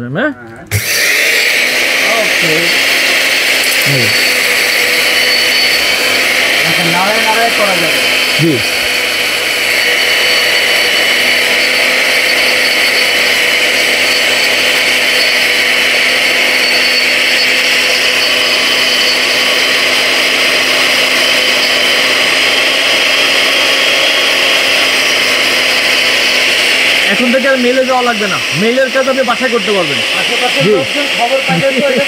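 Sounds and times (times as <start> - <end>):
powder grinder high-pitched whine: 0.7 - 32.0.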